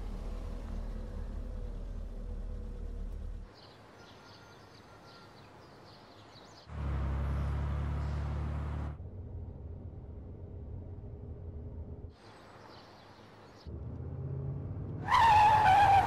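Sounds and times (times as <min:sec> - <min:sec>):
car engine rumbling: 0:00.0 - 0:03.5, 0:06.7 - 0:12.2, 0:13.7 - 0:16.0.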